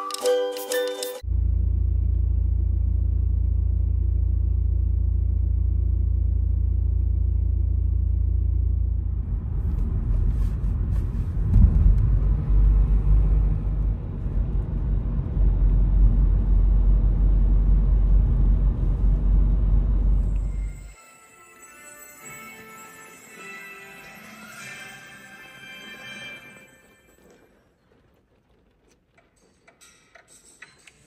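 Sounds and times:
road and tyre noise: 1.2 - 20.9
car interior hum: 1.3 - 20.8.

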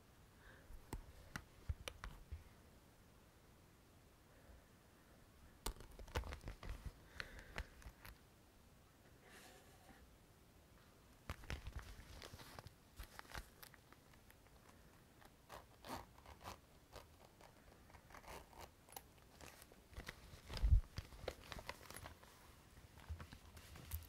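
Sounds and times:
small items clicking and rustling: 18.2 - 22.2.

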